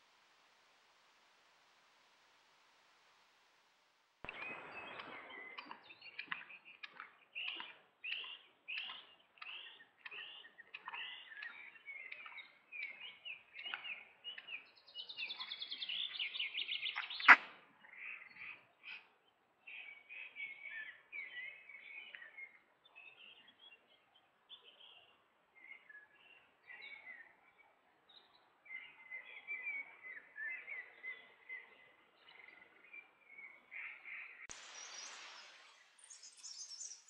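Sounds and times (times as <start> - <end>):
songbirds chirping and trilling: 4.3 - 37.0.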